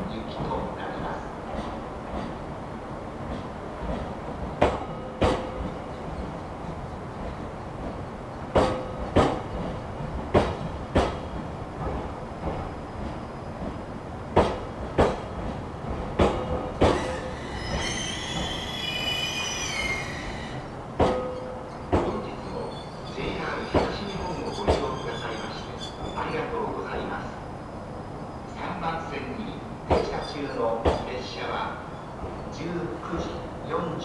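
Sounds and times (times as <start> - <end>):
train rumble: 0.0 - 34.0
train wheels clicking over rail joint: 8.5 - 12.6, 16.2 - 17.8
high wavering wheel squeal: 16.9 - 20.6, 22.5 - 26.4.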